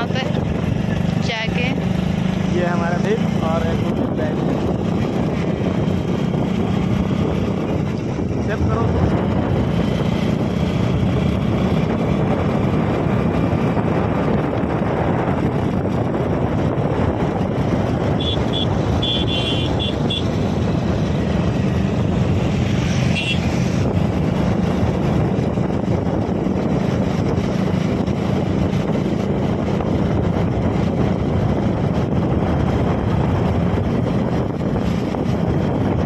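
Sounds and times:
engine drone: 0:00.0 - 0:36.0
wind rushing over microphone: 0:00.0 - 0:36.0.

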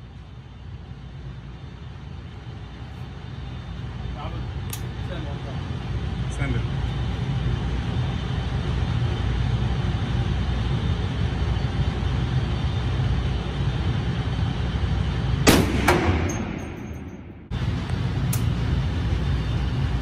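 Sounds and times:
steady low rumble: 0:00.0 - 0:20.0
loud rifle shot: 0:15.4 - 0:17.5
sharp crack: 0:15.5 - 0:17.0.

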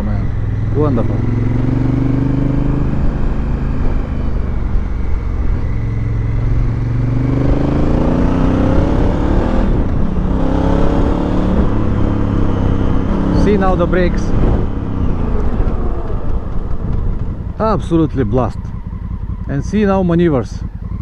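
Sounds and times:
motorcycle engine accelerating: 0:00.0 - 0:21.0
wind rush: 0:07.8 - 0:18.1.

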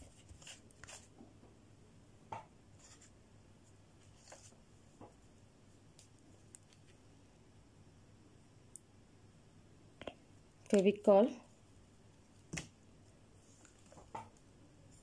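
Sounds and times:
faint clicks and rustles: 0:13.4 - 0:15.0.

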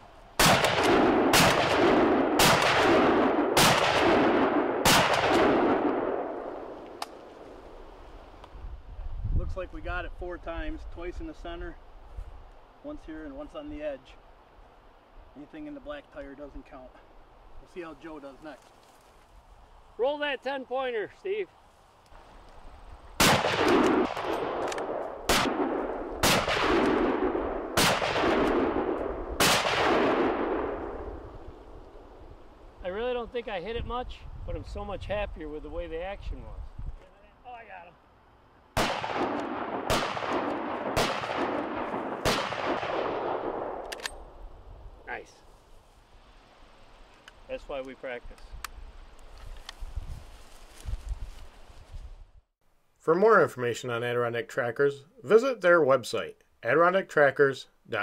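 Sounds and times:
rifle shots with rolling echo: 0:00.4 - 0:07.9, 0:23.2 - 0:32.1, 0:38.7 - 0:44.4.

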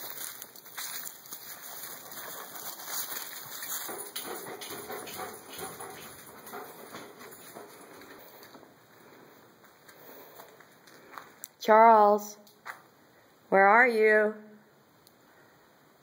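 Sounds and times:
rustling: 0:00.0 - 0:11.5
footsteps: 0:00.0 - 0:11.6, 0:12.4 - 0:13.0
dog sounds: 0:01.4 - 0:08.4.

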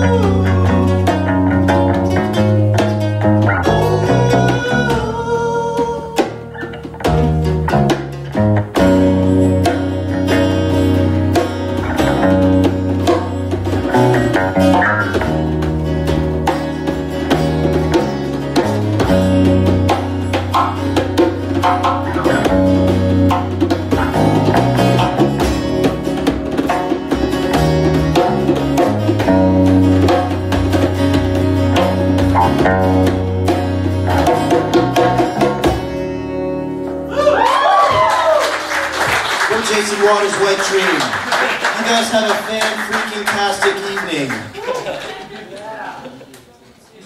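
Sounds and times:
djembe hand drumming: 0:00.0 - 0:36.1
acoustic guitar chords: 0:00.0 - 0:37.2
bass line: 0:00.0 - 0:38.4.

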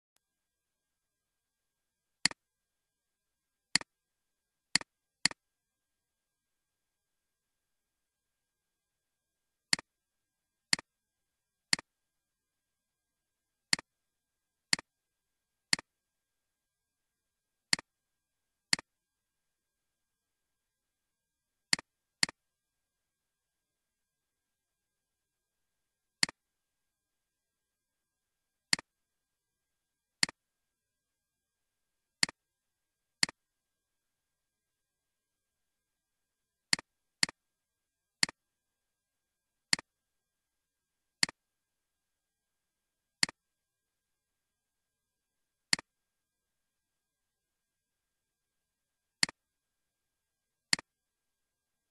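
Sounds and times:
computer mouse clicking: 0:33.2 - 0:33.4, 0:38.2 - 0:38.4, 0:41.2 - 0:41.4, 0:43.2 - 0:43.4, 0:49.2 - 0:49.4.

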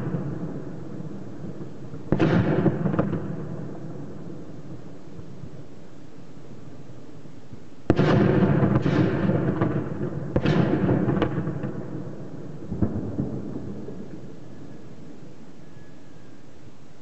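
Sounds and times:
heavy shelling explosions: 0:07.9 - 0:12.0.

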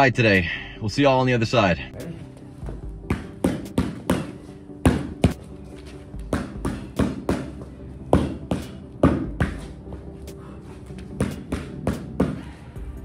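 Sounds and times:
boxing gloves slapping mitts: 0:03.1 - 0:05.5, 0:06.2 - 0:09.8, 0:11.1 - 0:12.5.

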